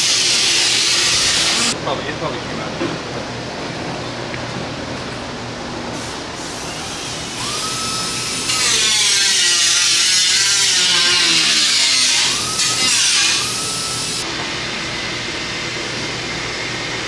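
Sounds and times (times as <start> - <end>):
power tool whine: 0.0 - 1.8, 6.5 - 14.3.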